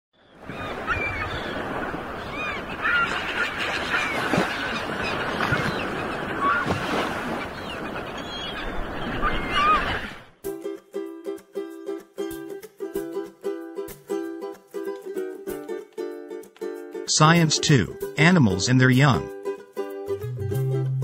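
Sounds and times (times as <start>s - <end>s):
birds calling: 0.2s - 10.4s
sea surf: 0.2s - 10.4s, 17.1s - 19.3s.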